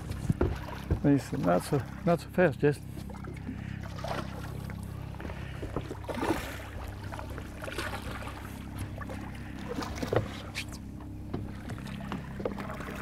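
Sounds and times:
boat motor humming: 0.0s - 13.0s
fish splashing in water: 3.1s - 10.8s.

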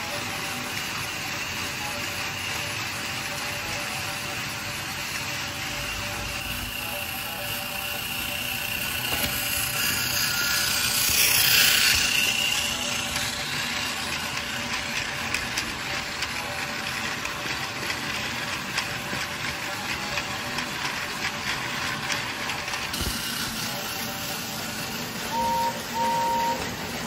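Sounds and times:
rapid clicking of gears: 0.0s - 25.3s
toy train motor whirring: 0.0s - 27.0s.

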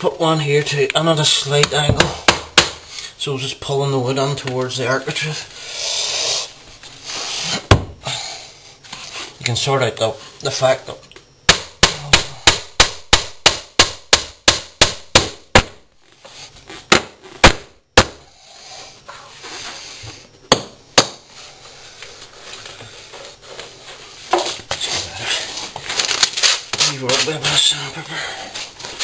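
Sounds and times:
hammer hitting nail into wood: 1.9s - 2.8s, 11.5s - 15.8s.

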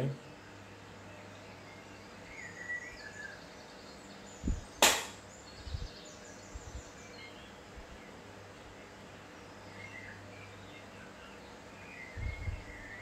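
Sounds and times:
faint birds chirping: 0.0s - 13.0s
sharp knock: 4.8s - 5.2s.

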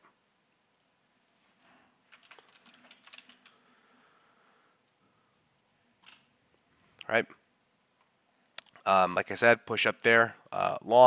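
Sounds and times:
faint keyboard typing: 0.7s - 7.1s.

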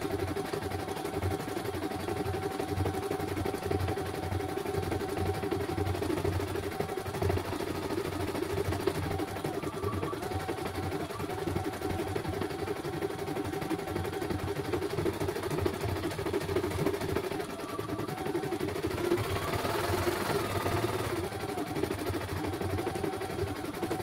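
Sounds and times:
embroidery machine needle rattle: 18.8s - 22.9s.

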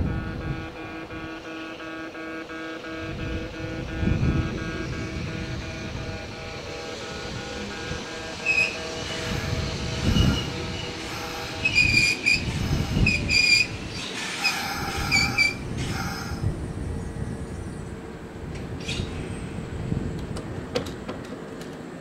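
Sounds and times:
electric train hum: 0.0s - 22.0s
high-pitched brake squeals: 4.0s - 16.4s.

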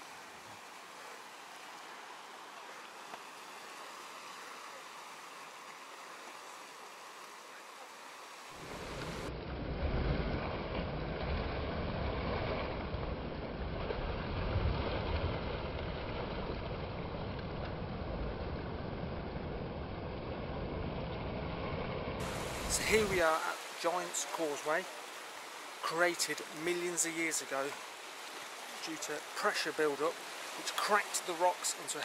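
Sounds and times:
sea surf washing: 0.0s - 20.7s, 22.2s - 32.0s
low surf rumble: 0.0s - 32.0s
wind buffeting microphone: 8.6s - 23.8s.

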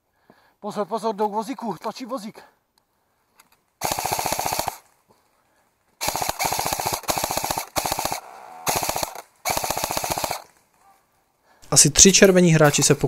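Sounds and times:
airsoft rifle firing bursts: 3.8s - 4.9s, 6.0s - 10.6s.

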